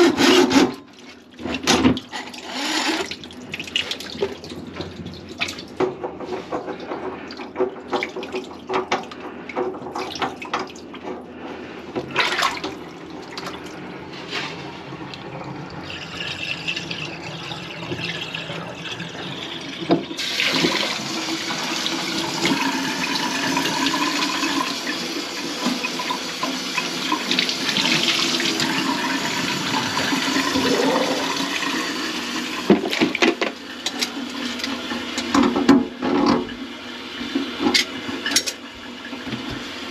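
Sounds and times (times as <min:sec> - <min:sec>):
knocks and clatter at sink: 0:05.8 - 0:11.2
water running into sink: 0:15.1 - 0:39.9.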